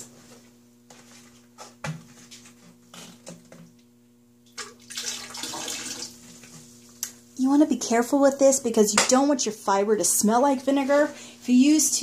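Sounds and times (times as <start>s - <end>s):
vinegar pouring into sink water: 4.5s - 6.4s.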